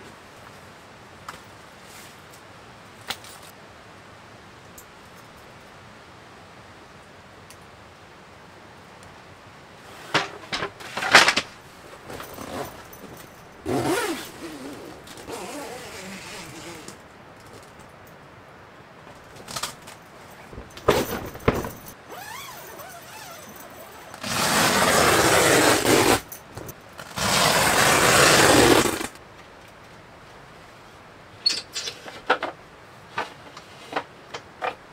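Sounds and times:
loud scraping rustles: 9.8s - 17.0s, 19.3s - 29.2s
knocks and clicks of wooden parts: 19.4s - 22.0s.

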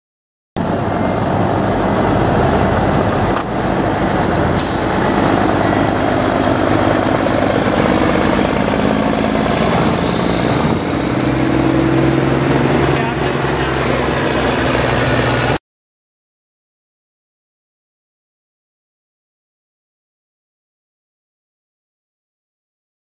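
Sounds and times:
diesel truck engines driving past: 0.6s - 15.6s
air brake hiss: 4.6s - 5.6s.

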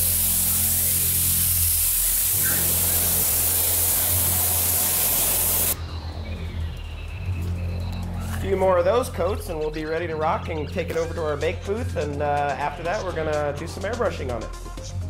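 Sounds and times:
paint spray gun hissing: 0.0s - 5.8s.

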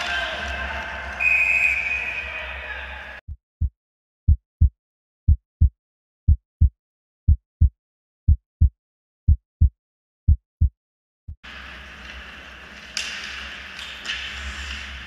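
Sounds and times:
heartbeat double thump: 3.3s - 4.7s, 5.3s - 5.7s, 6.3s - 6.7s, 7.3s - 7.7s, 8.3s - 9.7s, 10.3s - 10.7s.

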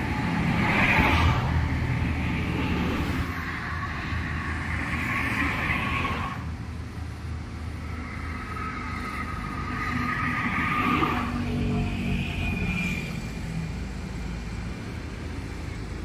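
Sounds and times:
car tyres hissing on concrete: 0.0s - 11.4s
low rumble of traffic: 0.0s - 16.0s.

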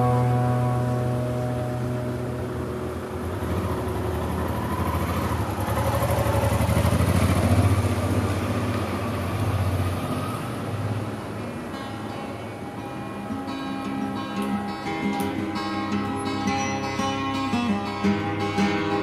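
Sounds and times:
motorcycle riding past: 0.0s - 13.5s.

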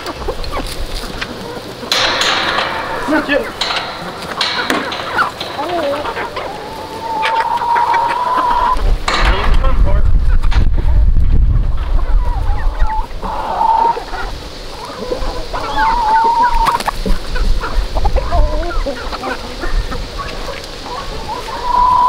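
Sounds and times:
chickens clucking and calling: 0.0s - 22.0s
low rumble: 9.0s - 12.8s.

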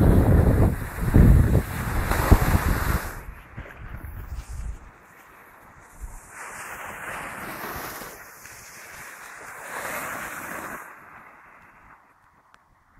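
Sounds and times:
skis scraping over snow: 0.0s - 12.6s.

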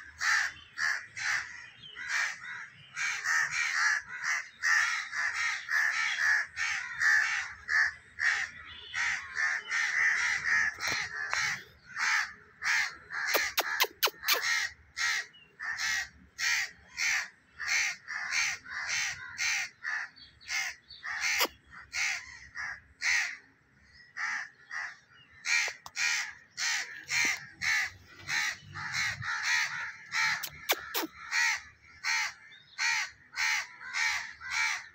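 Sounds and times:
birds calling: 0.0s - 34.9s
sharp clicks: 13.4s - 14.4s.

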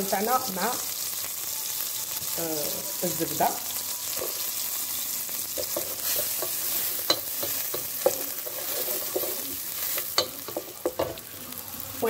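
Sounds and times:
onion sizzling in butter: 0.0s - 12.0s
wooden spoon stirring: 5.6s - 11.0s.

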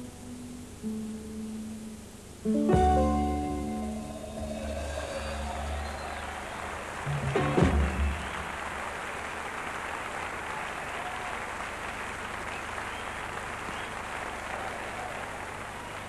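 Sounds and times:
audience applauding: 4.0s - 16.0s.

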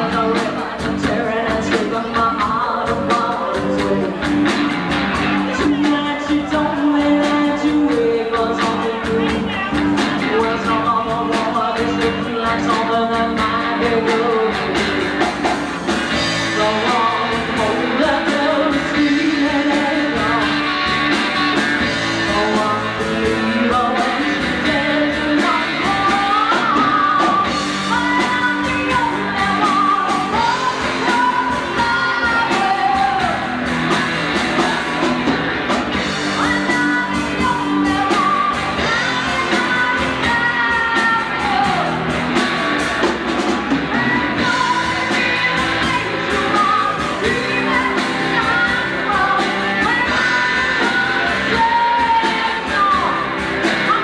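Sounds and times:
woman singing: 0.0s - 43.0s, 43.6s - 54.0s
rock band playing: 0.0s - 54.0s.

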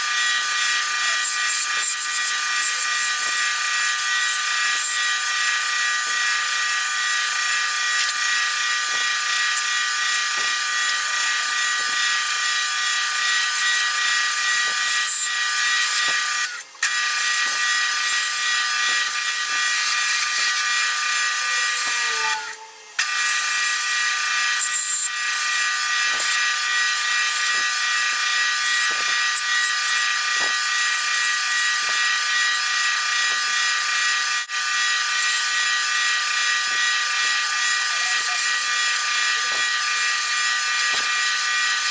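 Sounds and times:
wood lathe motor hum: 0.0s - 41.9s
hiss of cutting: 7.5s - 23.4s, 24.6s - 33.5s, 35.3s - 41.9s.

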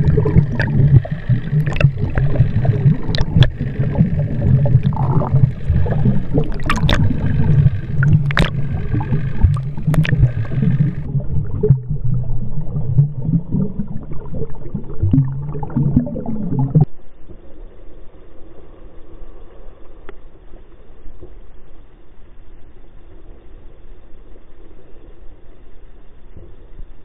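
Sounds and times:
crackles and pops: 0.0s - 17.4s
underwater gurgling and rushing: 0.0s - 22.0s
steady noise: 0.0s - 27.0s.

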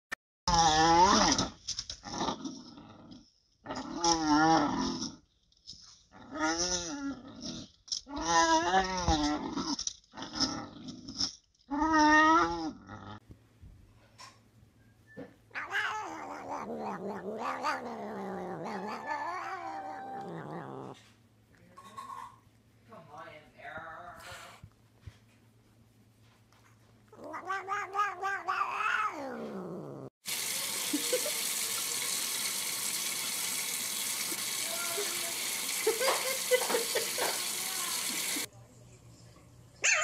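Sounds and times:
dog whining growls: 0.5s - 5.2s, 6.1s - 13.2s, 15.2s - 21.1s, 27.1s - 30.1s
cat yowling: 15.5s - 20.9s, 27.2s - 29.9s.

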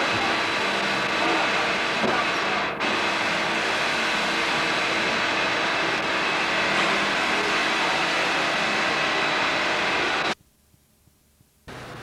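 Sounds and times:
steady rushing noise: 0.0s - 10.4s
faint steady hums: 5.8s - 12.0s.

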